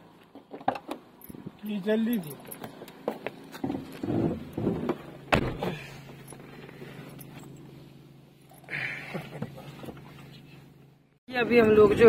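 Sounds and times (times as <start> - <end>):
car running low hum: 2.2 - 12.0
car door thump: 5.3 - 5.8.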